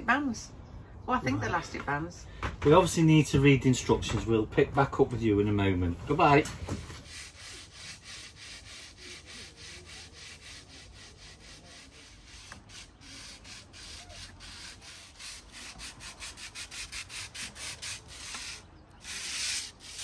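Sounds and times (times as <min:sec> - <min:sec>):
hand sanding steel roof: 0:06.9 - 0:20.0.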